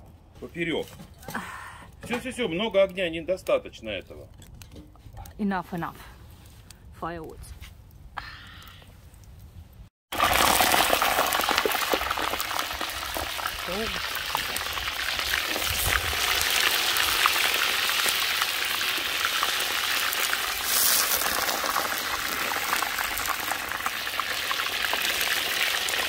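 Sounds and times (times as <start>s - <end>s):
hot oil sizzling and spattering: 10.1s - 26.0s.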